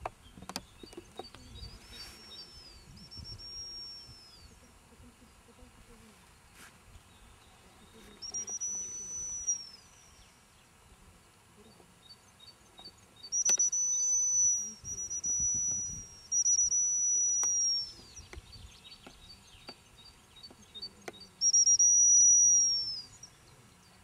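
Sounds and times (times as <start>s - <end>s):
dog whistle blasts: 13.4s - 17.9s, 21.4s - 23.0s.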